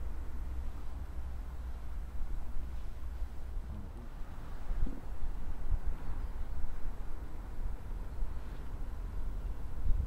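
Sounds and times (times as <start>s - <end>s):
faint outdoor hiss: 0.0s - 10.0s
wind buffeting microphone: 1.0s - 10.0s.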